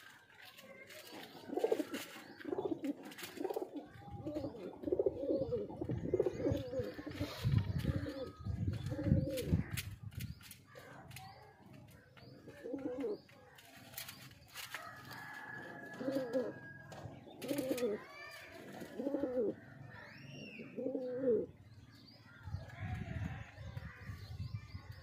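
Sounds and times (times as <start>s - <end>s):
pigeons cooing: 1.0s - 14.1s, 15.0s - 21.6s.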